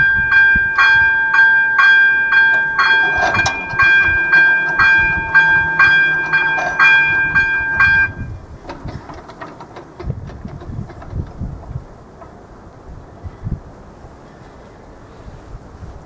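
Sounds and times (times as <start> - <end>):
level crossing bell ringing: 0.0 - 8.3
train passing: 0.0 - 10.1.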